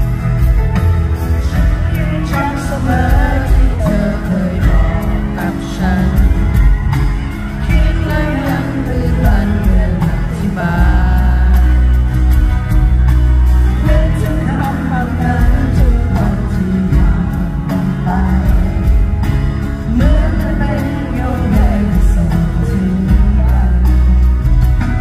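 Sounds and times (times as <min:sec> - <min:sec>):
live band with bass and drums: 0:00.0 - 0:25.0
woman singing pop song: 0:01.4 - 0:06.8, 0:07.5 - 0:12.0, 0:19.8 - 0:24.2.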